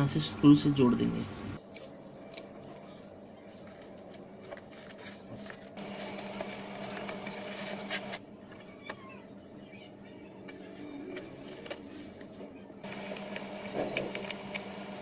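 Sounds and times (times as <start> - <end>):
steady hum: 5.2 - 8.5, 11.6 - 15.0.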